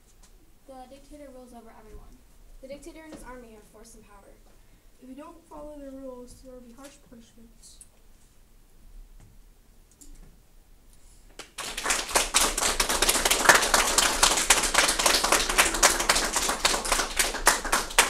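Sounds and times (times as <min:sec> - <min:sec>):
group clapping: 0:11.3 - 0:18.0.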